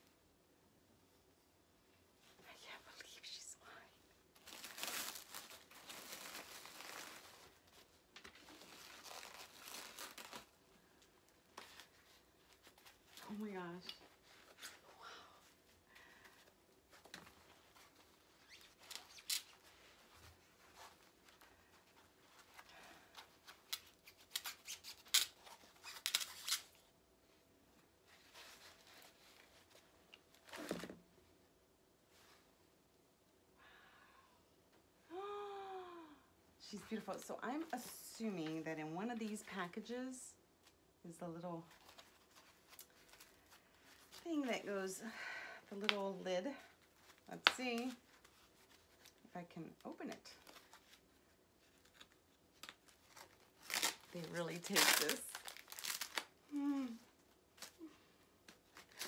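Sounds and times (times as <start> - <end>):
packing wrap crinkling: 4.3 - 14.8, 16.9 - 22.8, 23.4 - 26.8, 46.8 - 59.0.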